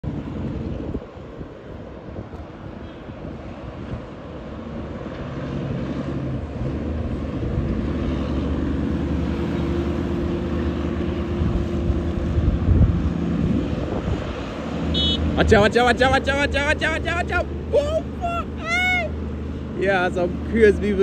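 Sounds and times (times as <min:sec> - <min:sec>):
wind on microphone: 0:00.0 - 0:05.0, 0:11.2 - 0:14.8
diesel truck engines droning: 0:00.0 - 0:21.0.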